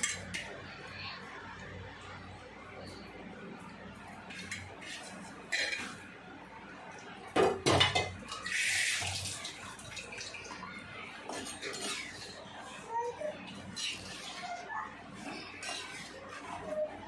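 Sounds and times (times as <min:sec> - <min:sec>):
kitchen utensils clattering: 0:00.0 - 0:00.8, 0:04.2 - 0:06.1, 0:07.2 - 0:17.0.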